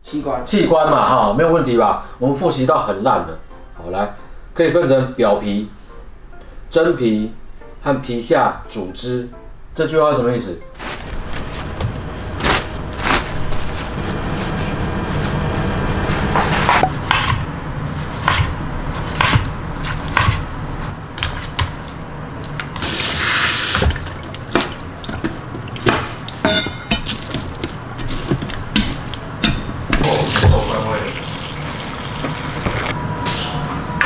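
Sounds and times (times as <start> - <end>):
tap running into sink: 23.6 - 27.7, 29.9 - 32.9.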